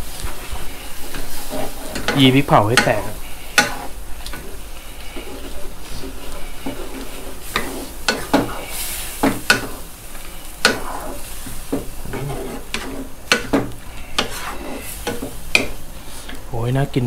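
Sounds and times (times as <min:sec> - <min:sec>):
wooden spatula scraping a wok: 0:00.0 - 0:16.5
sauce sizzling and bubbling: 0:00.0 - 0:16.6.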